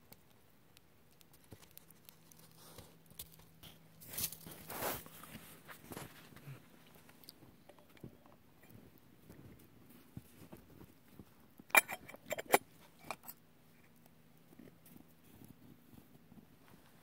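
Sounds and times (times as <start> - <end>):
pot lid clinking on rim: 11.7 - 13.3.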